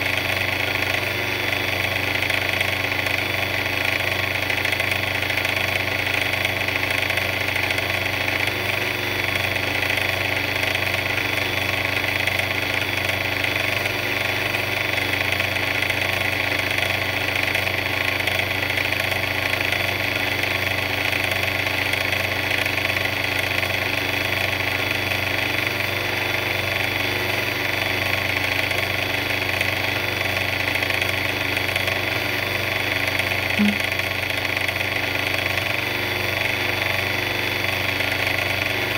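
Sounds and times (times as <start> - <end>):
mixer motor droning: 0.0 - 38.9.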